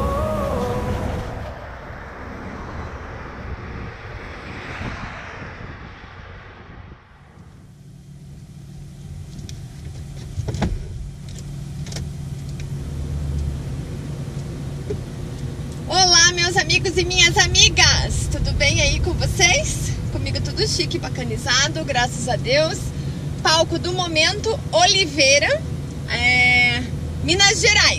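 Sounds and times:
truck passing on highway: 0.0s - 10.3s, 11.0s - 27.9s
clicks and knocks in cab: 9.4s - 12.6s.

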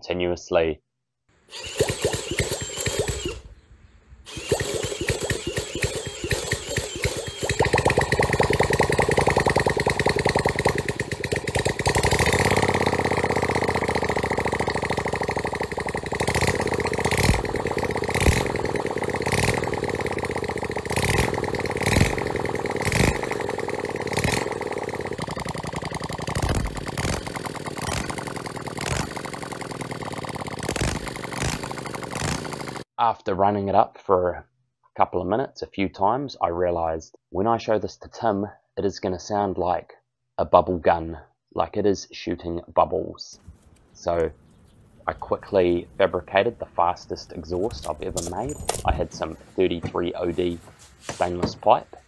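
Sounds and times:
unmuffled minibike engine: 1.5s - 3.5s, 4.3s - 32.9s, 44.1s - 51.8s
exhaust pops: 25.2s - 29.6s, 47.2s - 51.9s.

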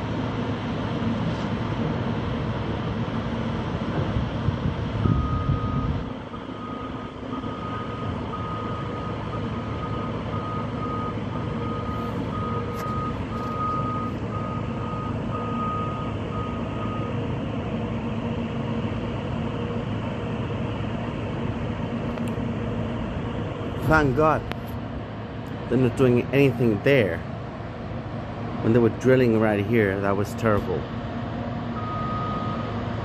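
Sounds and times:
heavy machinery engines rumbling: 0.0s - 33.0s
reversing alarm beeping: 5.0s - 17.2s, 31.8s - 32.8s.

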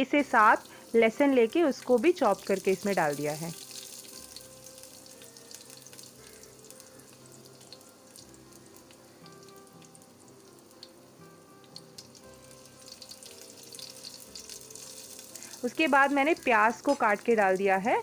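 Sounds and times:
oil sizzling in a pan: 0.0s - 18.0s
small crackles: 0.6s - 10.0s, 11.6s - 17.9s.

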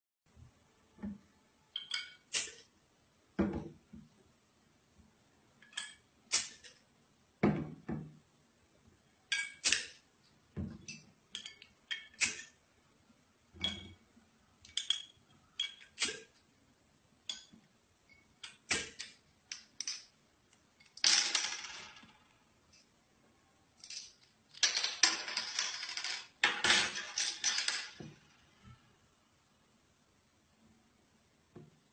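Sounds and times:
bottles thudding on tabletop: 3.4s - 3.8s, 7.4s - 8.2s
glass bottles clinking: 13.6s - 14.0s, 14.7s - 15.9s.

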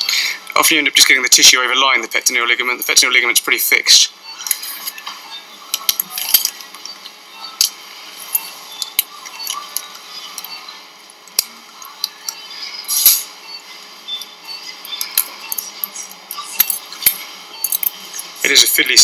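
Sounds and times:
steel instruments clicking and clinking: 14.2s - 19.0s.

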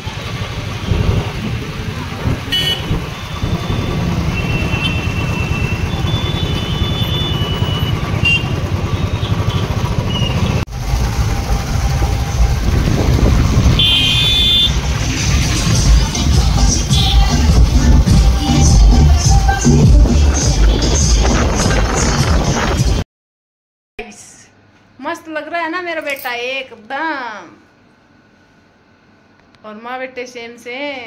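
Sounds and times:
motorcycle engine rumble: 0.0s - 22.7s
vehicle horns tooting: 2.4s - 10.5s, 13.7s - 14.9s, 16.8s - 17.5s
wind on microphone: 11.8s - 14.0s, 20.4s - 23.0s.

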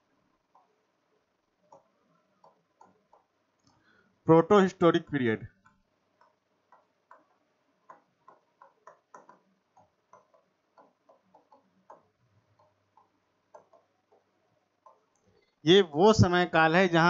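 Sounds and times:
stylus tapping on display: 0.4s - 3.8s, 5.5s - 15.6s.

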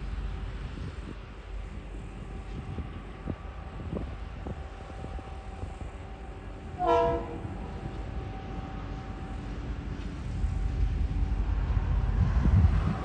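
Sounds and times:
diesel locomotive rumble: 0.0s - 13.0s
train horn blast: 6.7s - 7.8s.

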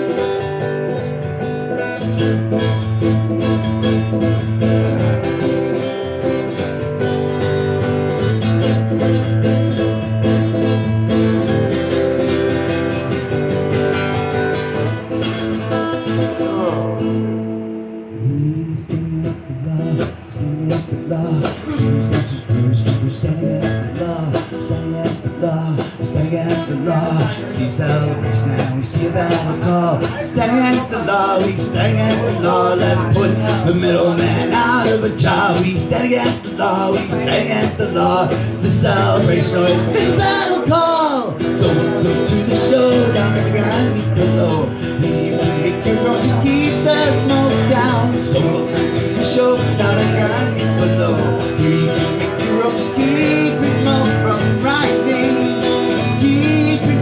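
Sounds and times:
guitar: 0.0s - 57.0s
person singing: 16.2s - 57.0s
live band playing: 23.8s - 57.0s.

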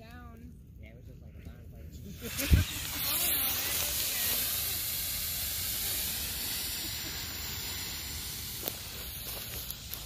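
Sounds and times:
battery venting hiss: 2.0s - 10.0s.

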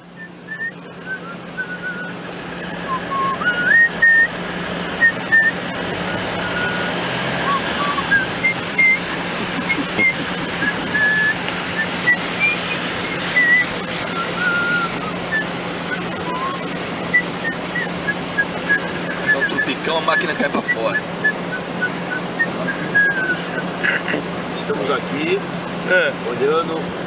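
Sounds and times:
train rumbling: 0.0s - 25.4s
person whistling a tune: 0.2s - 4.4s, 5.0s - 9.0s, 9.6s - 23.6s.

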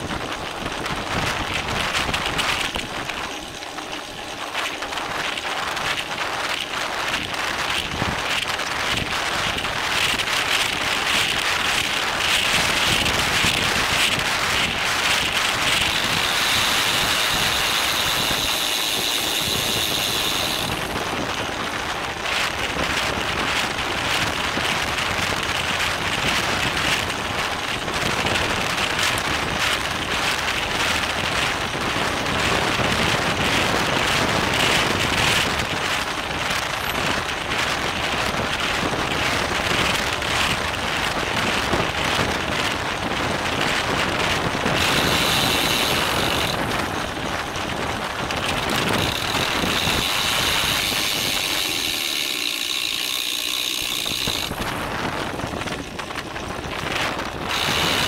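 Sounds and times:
bike rattling over road: 0.0s - 58.0s
high steady whine: 0.0s - 58.0s
wind rushing over microphone: 0.0s - 58.0s.

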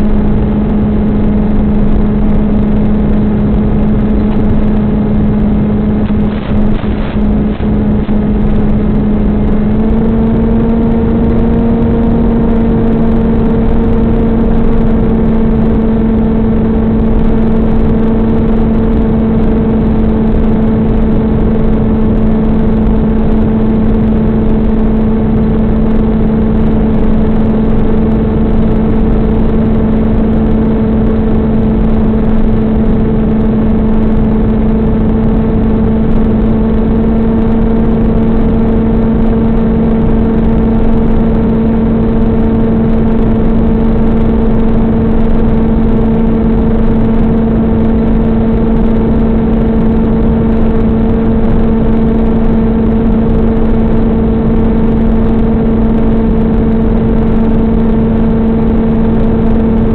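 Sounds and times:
electric motor and propeller buzzing: 0.0s - 28.8s
wind rush: 0.0s - 59.9s.

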